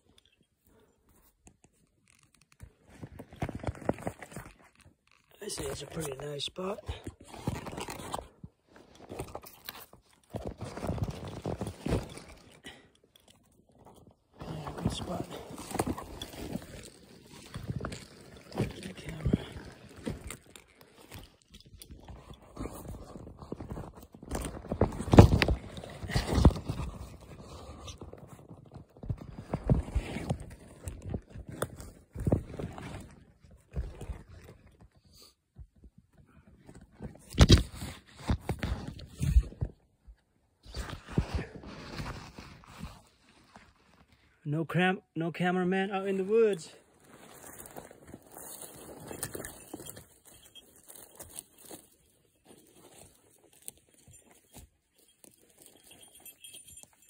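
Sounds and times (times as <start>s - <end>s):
rustling pine needles and twigs: 46.8s - 57.0s.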